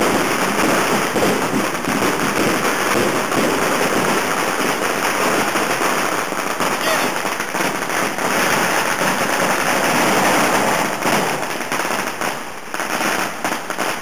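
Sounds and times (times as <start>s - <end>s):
firecrackers crackling: 0.0s - 14.0s.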